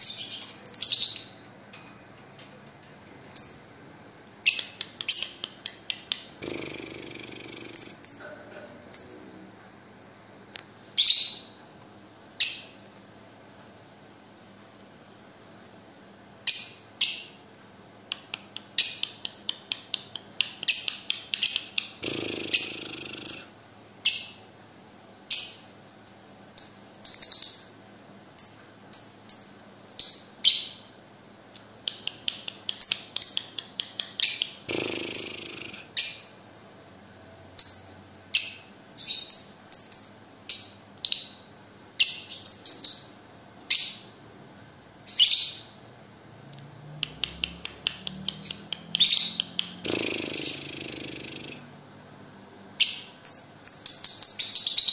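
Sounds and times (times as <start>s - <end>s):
lovebird chirping: 0.0s - 1.5s, 4.4s - 9.3s, 11.0s - 11.6s, 18.1s - 24.4s, 31.9s - 36.4s, 45.1s - 45.8s, 47.0s - 51.7s, 52.8s - 54.9s
harsh bird chattering: 4.5s - 9.3s, 18.1s - 23.6s, 31.9s - 36.2s, 47.0s - 51.7s.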